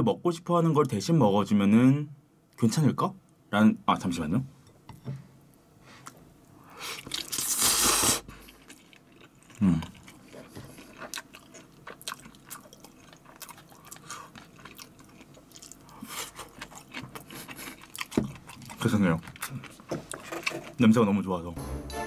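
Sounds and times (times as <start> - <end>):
person slurping noodles: 6.9 - 8.3
wet chewing and lip smacks: 8.4 - 20.2.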